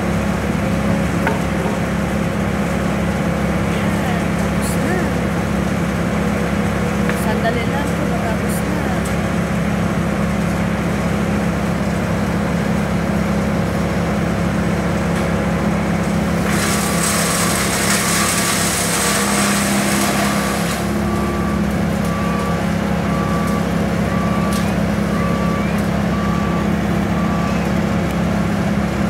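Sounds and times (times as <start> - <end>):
truck engine running: 0.0 - 29.0
truck reversing beeper: 16.7 - 29.0.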